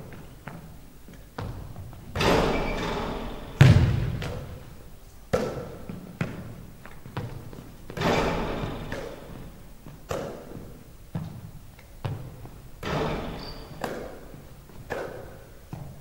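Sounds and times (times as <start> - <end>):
basketball thudding on hardwood: 1.4 - 4.6
basketball striking the rim: 1.4 - 6.5, 7.2 - 11.3, 12.0 - 15.9.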